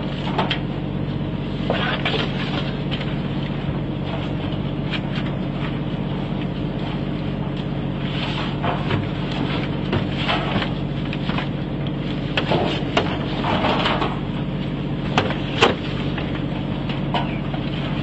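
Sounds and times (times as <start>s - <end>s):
boat engine running: 0.0s - 18.0s.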